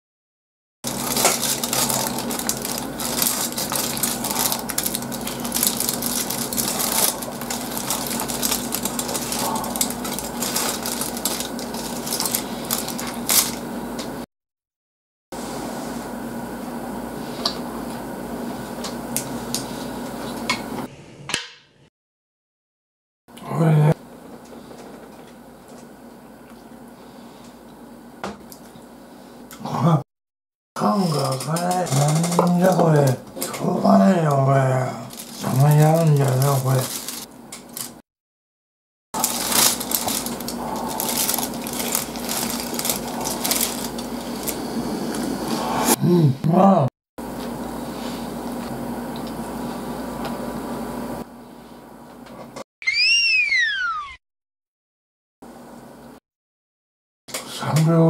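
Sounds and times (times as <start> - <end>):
fried food crunching when chewed: 0.9 - 13.6, 35.1 - 38.0, 39.2 - 44.6
room hum: 0.9 - 14.3, 15.4 - 21.3, 23.3 - 30.0, 30.8 - 38.0, 39.2 - 52.6.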